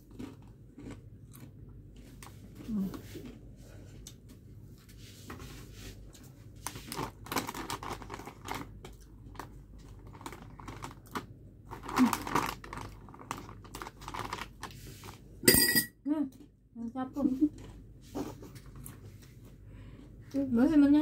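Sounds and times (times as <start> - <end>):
chips crunching: 0.1 - 1.6, 7.1 - 14.6
plastic snack bag crinkling: 6.7 - 15.2.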